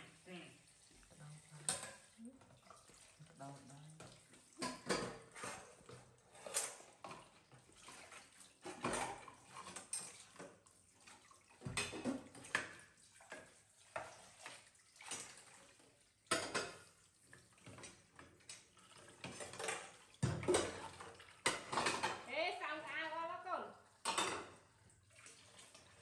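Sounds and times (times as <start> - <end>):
tap water running into sink: 0.0 - 22.3
plates and bowls clinking: 1.5 - 2.2, 4.1 - 7.4, 8.6 - 10.5, 16.3 - 16.9, 19.0 - 22.3, 24.0 - 24.6.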